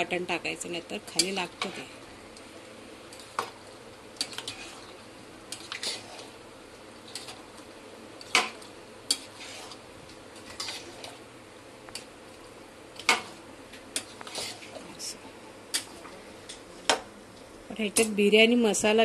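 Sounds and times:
spatula scraping a metal pot: 0:04.2 - 0:04.9, 0:05.5 - 0:06.4, 0:09.1 - 0:09.8, 0:10.4 - 0:11.2, 0:14.0 - 0:14.8.

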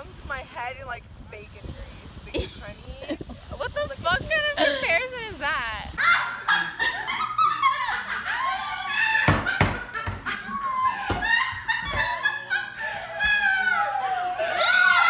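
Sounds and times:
young women shrieking laughter: 0:06.0 - 0:15.0.

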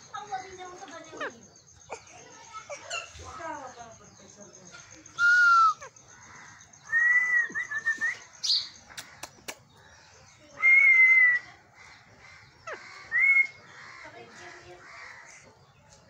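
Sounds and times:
parakeets calling loudly: 0:00.0 - 0:06.9, 0:11.4 - 0:15.7
sharp clicks: 0:08.9 - 0:09.7.

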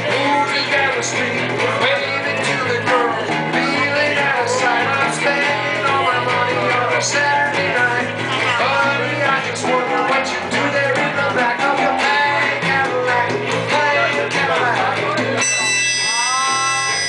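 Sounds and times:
electric guitars: 0:00.0 - 0:17.0
man singing: 0:00.0 - 0:17.0
harmonica playing held notes: 0:15.4 - 0:17.0.

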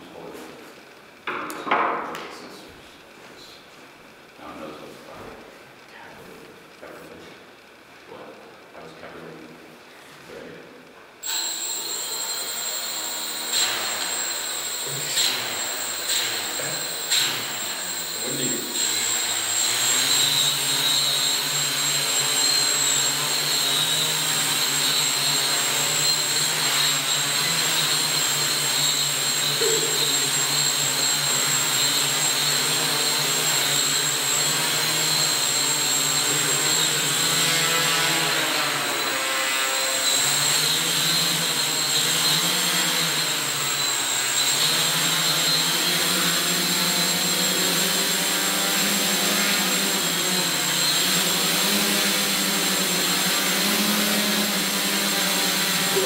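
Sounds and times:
quadcopter propellers whirring: 0:11.2 - 0:56.0.

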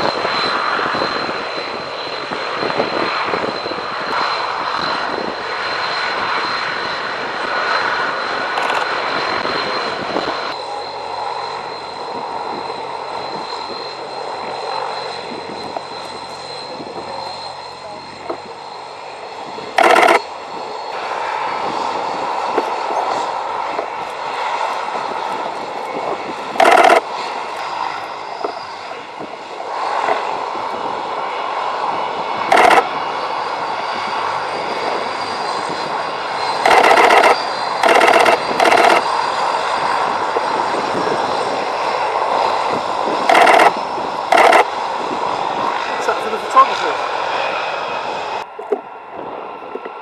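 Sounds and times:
aircraft engine running: 0:00.0 - 0:50.0
loud noise bursts: 0:19.8 - 0:20.2, 0:26.6 - 0:27.0, 0:32.5 - 0:32.8, 0:36.6 - 0:39.0, 0:43.3 - 0:44.7
faint high whine: 0:35.3 - 0:39.2.

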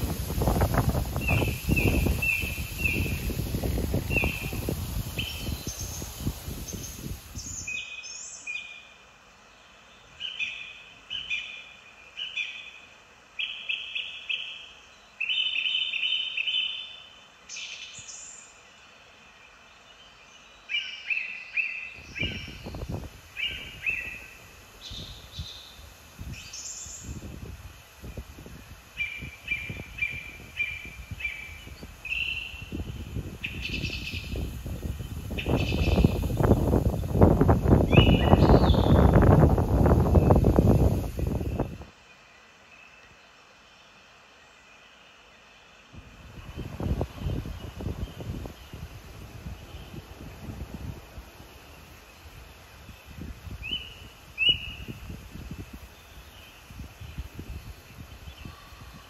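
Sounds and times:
wind buffeting microphone: 0:00.0 - 0:07.8, 0:22.0 - 0:41.9, 0:45.9 - 0:59.0
small birds chirping: 0:00.0 - 0:59.0.

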